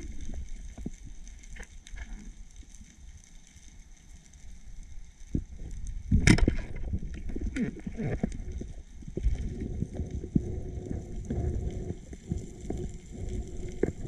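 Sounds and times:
underwater knocks against rocks: 6.1s - 7.4s.

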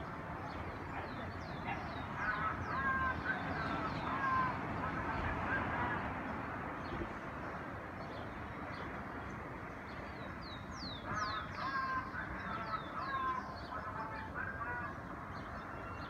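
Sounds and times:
city background hum: 0.0s - 16.0s
birds whistling and calling: 10.0s - 16.0s.

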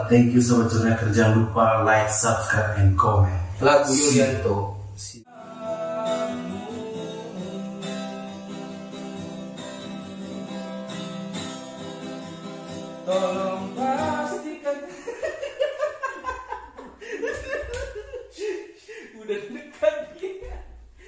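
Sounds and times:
man singing: 3.8s - 4.4s, 5.3s - 10.0s, 13.0s - 15.5s
acoustic guitar strumming: 5.3s - 15.1s.

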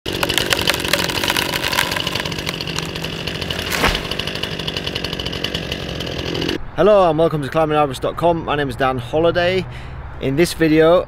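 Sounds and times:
chainsaw running: 0.1s - 6.6s
wood crackling: 0.1s - 6.6s.

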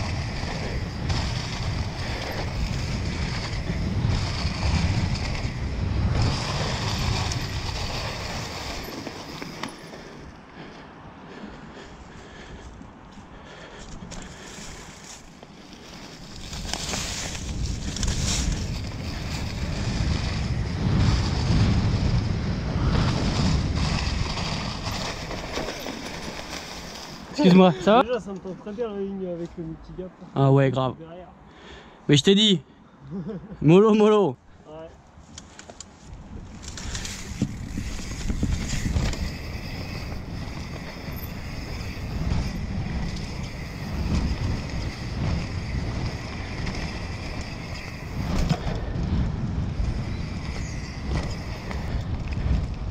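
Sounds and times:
wind rushing over microphone: 0.0s - 13.1s, 13.9s - 28.0s, 36.1s - 52.9s
bike tyres rolling over leaves and dirt: 0.0s - 29.7s, 34.7s - 52.9s
bike knocking over bumps: 36.5s - 52.9s.

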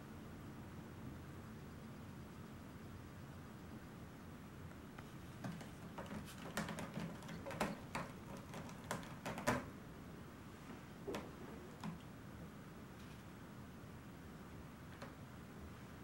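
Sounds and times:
kitten paws tapping and scratching: 5.0s - 9.7s, 11.1s - 12.1s.

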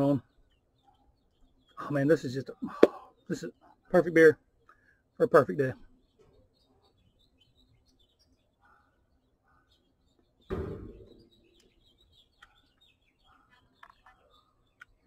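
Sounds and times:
songbirds chirping: 0.0s - 15.0s
thump: 10.5s - 11.2s.

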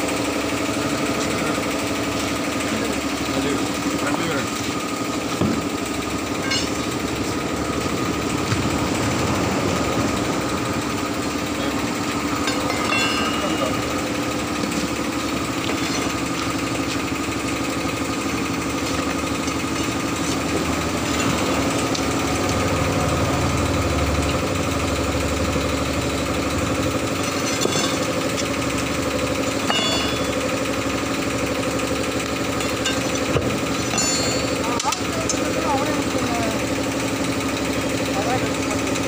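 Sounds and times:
engine running steadily: 0.0s - 39.0s.

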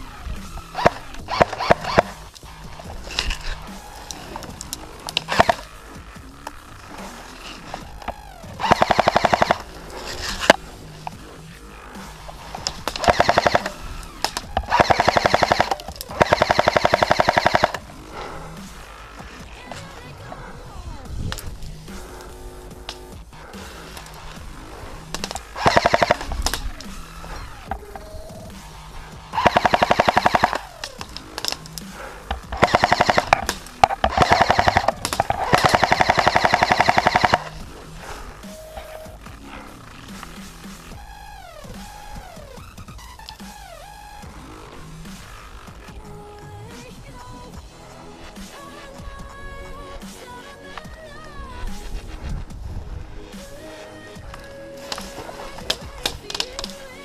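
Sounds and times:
airsoft rifle full-auto bursts: 0.0s - 20.6s, 21.3s - 44.5s, 53.3s - 57.0s.

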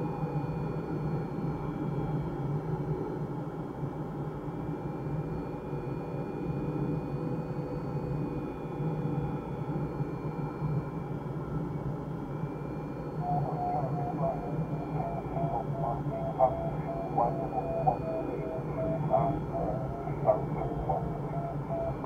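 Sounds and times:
faint high tones: 12.9s - 22.0s.

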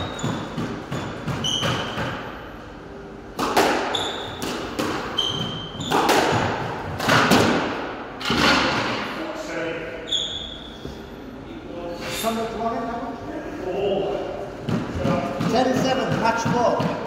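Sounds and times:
shoes squeaking on wooden floor: 0.0s - 2.2s, 5.0s - 6.2s
squash ball hits: 0.0s - 2.4s, 3.3s - 9.0s, 14.6s - 17.0s.

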